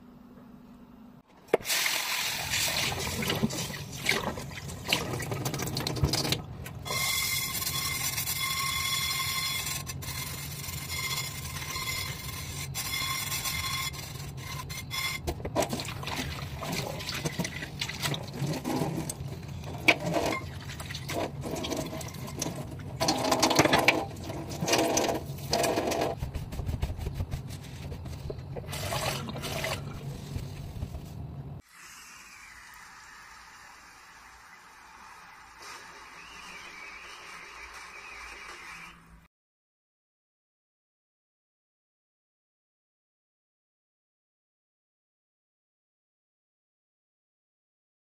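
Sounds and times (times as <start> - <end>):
water splashing in sink: 1.5 - 7.1, 15.6 - 27.2, 28.6 - 30.9
steady low hum: 26.1 - 31.6.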